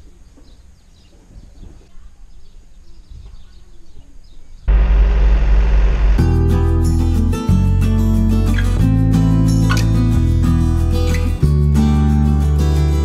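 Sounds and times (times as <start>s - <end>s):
faint birdsong: 0.0s - 4.8s
tractor engine running: 4.7s - 7.3s.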